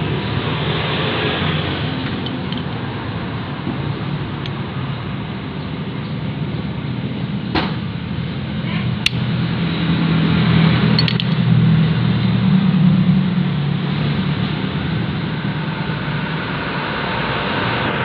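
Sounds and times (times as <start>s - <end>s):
low mechanical drone: 0.0s - 18.0s
light metal clicks: 11.0s - 11.4s.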